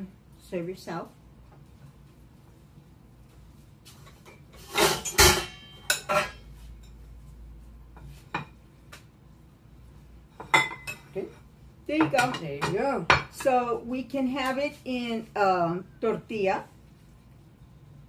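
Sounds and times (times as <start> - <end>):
dishes clattering: 4.3 - 7.0, 10.4 - 11.4.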